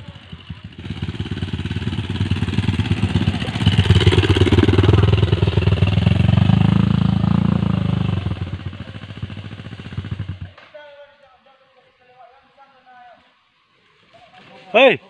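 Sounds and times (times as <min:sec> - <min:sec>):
motorcycle engine revving hard: 0:00.0 - 0:10.6.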